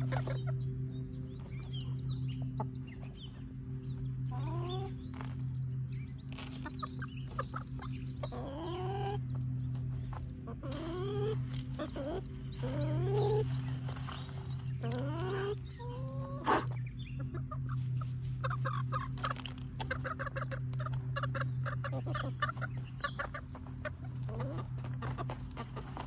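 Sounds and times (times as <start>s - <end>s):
chickens clucking: 0.0s - 26.0s
steady low hum: 0.0s - 26.0s
chicken rising calls: 10.5s - 26.0s.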